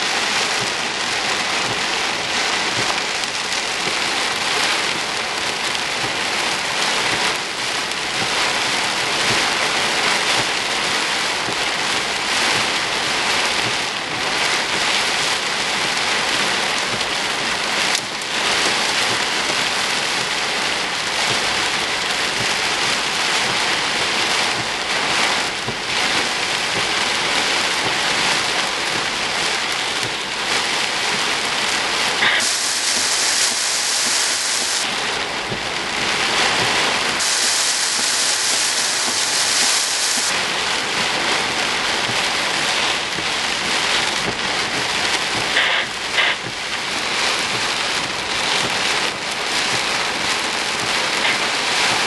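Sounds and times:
heavy rain hiss: 0.0 - 52.0.

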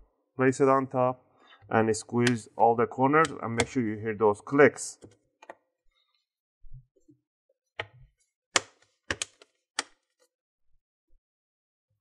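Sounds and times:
plastic clips snapping into place: 8.6 - 10.0.

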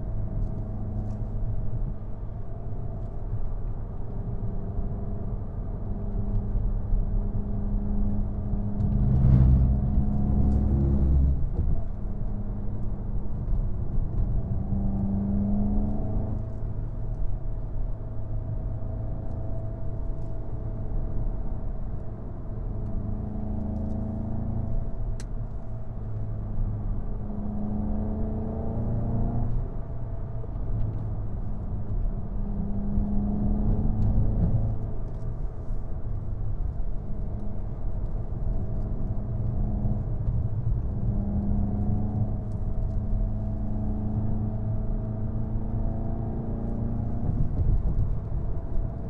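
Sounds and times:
road and tyre rumble: 0.0 - 49.0
car engine accelerating: 6.0 - 16.7, 26.2 - 49.0.

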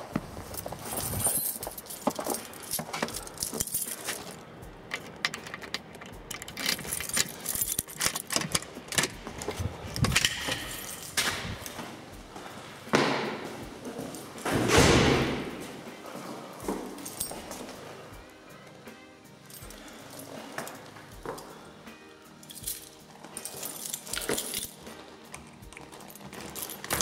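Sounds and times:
keys jangling: 0.4 - 11.9, 16.7 - 18.3, 19.3 - 21.6, 22.2 - 27.0.

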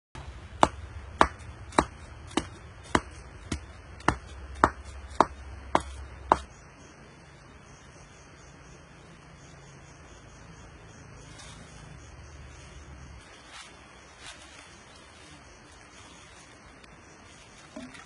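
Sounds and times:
hand tool chopping strikes: 0.5 - 6.5.

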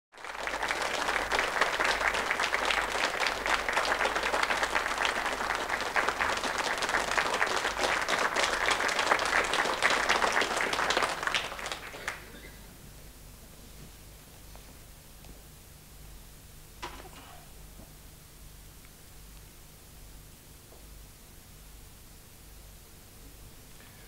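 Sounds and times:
audience applauding: 0.1 - 12.6.

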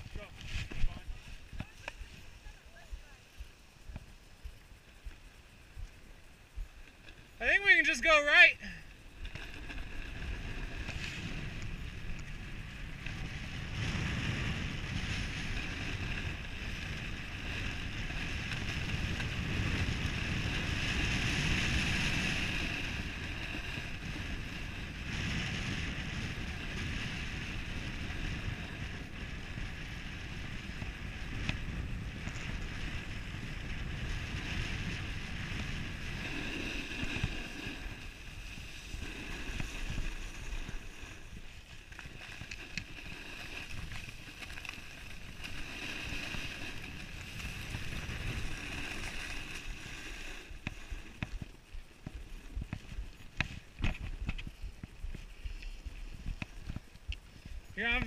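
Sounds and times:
wind on microphone: 0.0 - 7.5, 8.6 - 58.0
skis scraping over snow: 0.0 - 58.0.

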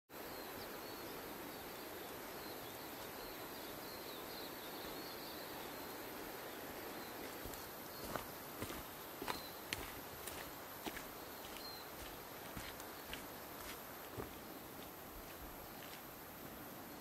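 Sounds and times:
faint high-pitched chirping: 0.1 - 10.4
forest ambience hiss: 0.1 - 17.0.

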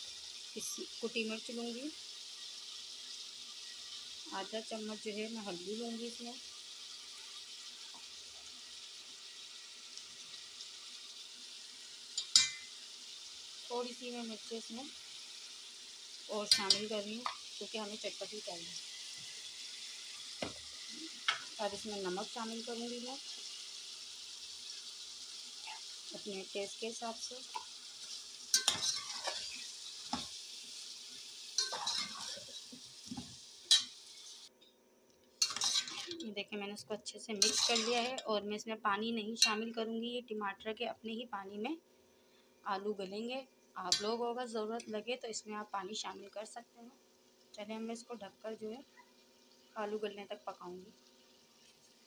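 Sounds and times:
food sizzling in oil: 0.0 - 34.6, 35.4 - 40.0, 41.2 - 52.0
spoon clinking against pot: 28.5 - 29.4, 31.6 - 32.3, 35.4 - 36.2, 37.4 - 38.2.

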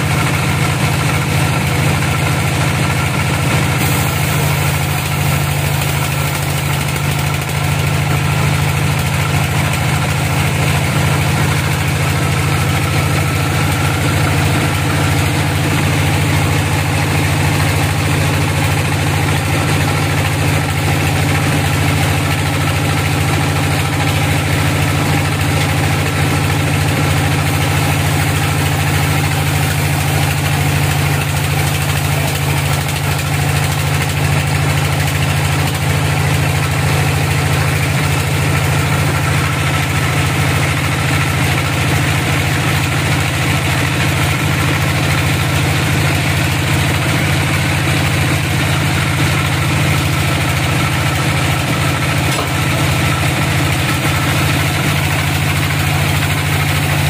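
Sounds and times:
low machine drone: 0.0 - 57.0
band saw cutting log: 3.5 - 20.0, 25.0 - 34.1, 50.5 - 57.0.

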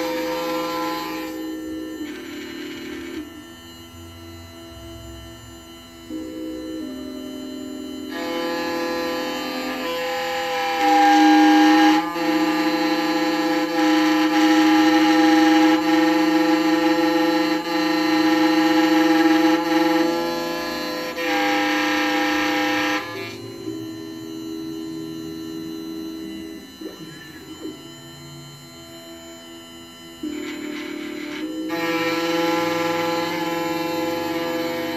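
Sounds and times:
key-cutting machine motor whine: 0.0 - 34.9.

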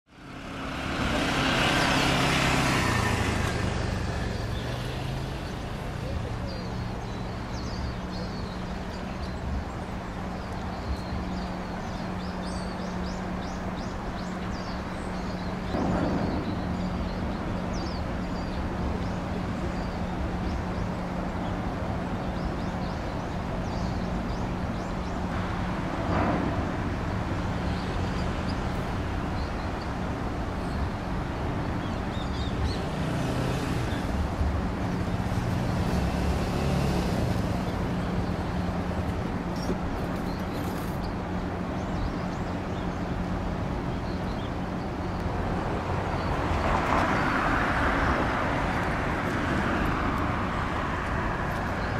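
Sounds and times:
small birds chirping: 0.1 - 25.7, 27.3 - 51.9.

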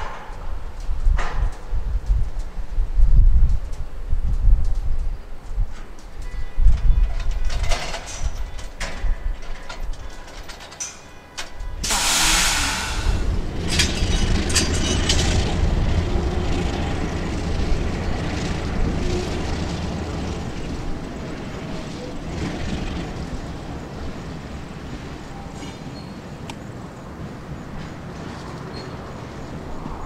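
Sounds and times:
diesel locomotive engines rumbling: 0.0 - 30.0
air hissing: 11.8 - 13.6.

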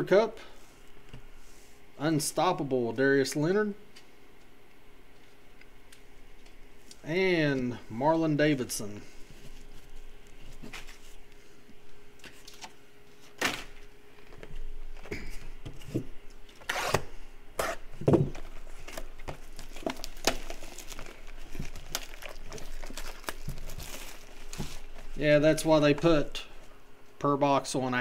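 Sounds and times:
plastic shrink-wrap crinkling: 18.3 - 26.4.

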